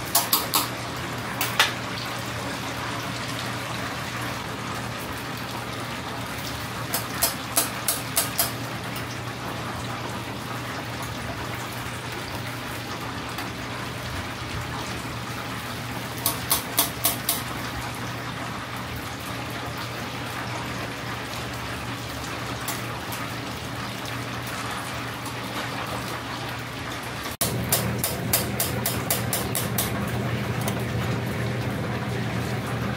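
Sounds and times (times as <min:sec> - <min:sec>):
hot oil sizzling and bubbling: 0:00.0 - 0:32.9
metal tongs clicking: 0:00.1 - 0:00.7.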